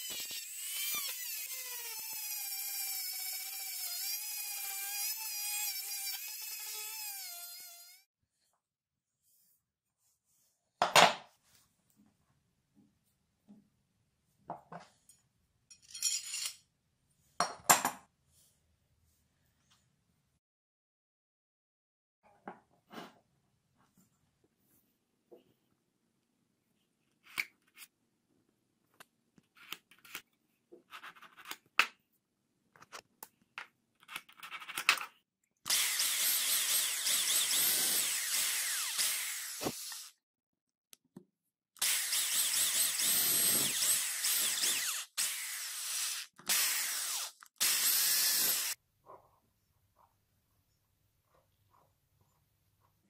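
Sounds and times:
electric drill boring wood: 0:00.0 - 0:08.1, 0:35.7 - 0:40.2, 0:41.8 - 0:48.8.

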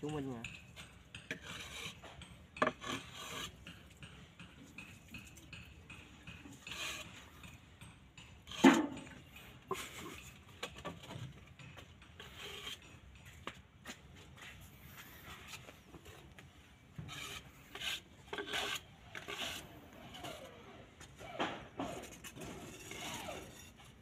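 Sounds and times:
trowel scraping mortar: 0:00.8 - 0:11.2, 0:12.0 - 0:13.4, 0:17.0 - 0:20.5, 0:21.8 - 0:24.0.

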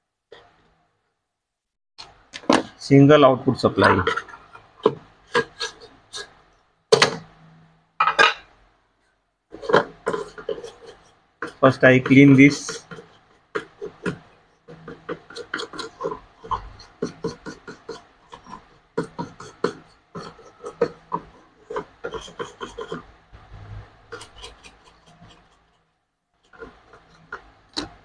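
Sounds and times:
brush scrubbing circuit board: 0:03.2 - 0:06.5, 0:09.5 - 0:28.0.

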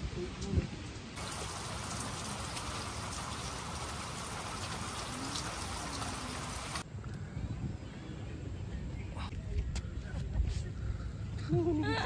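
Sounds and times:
steady rain falling: 0:00.0 - 0:06.8.

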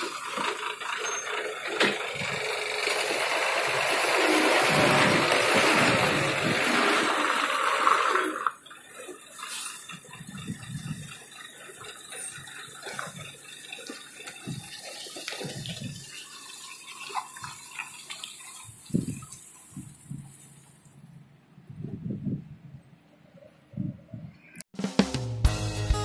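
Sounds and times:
low rumbles: 0:00.9 - 0:07.5.

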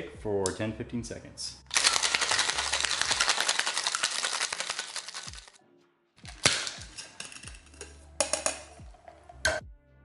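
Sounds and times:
ice rattling in cocktail shaker: 0:01.7 - 0:05.6, 0:06.3 - 0:08.0.

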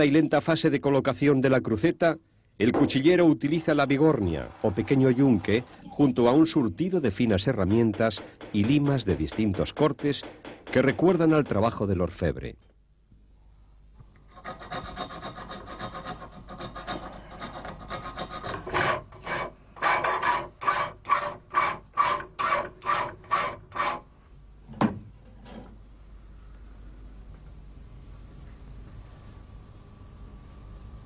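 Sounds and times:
hand file rasping on metal: 0:14.3 - 0:24.0.

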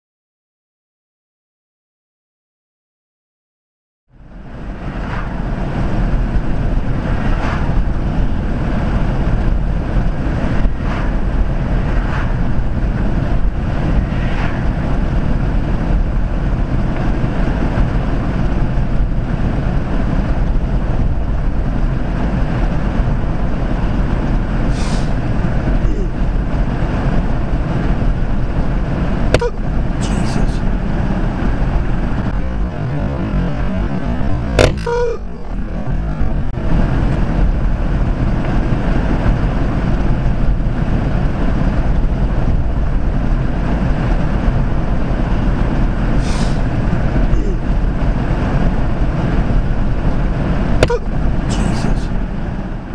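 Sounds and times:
car road and wind noise: 0:04.1 - 0:52.9.

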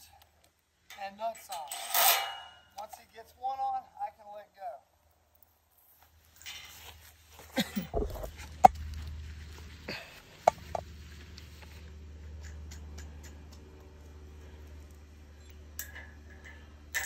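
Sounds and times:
steady low hum: 0:07.6 - 0:17.0
metal washers and nuts clicking: 0:12.3 - 0:17.0.

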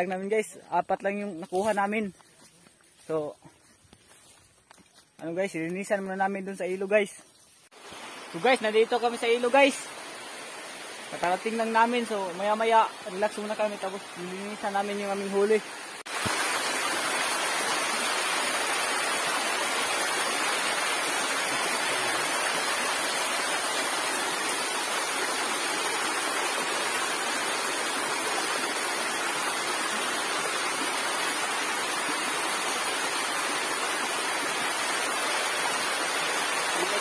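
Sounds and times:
river water rushing over rocks: 0:07.8 - 0:37.0.

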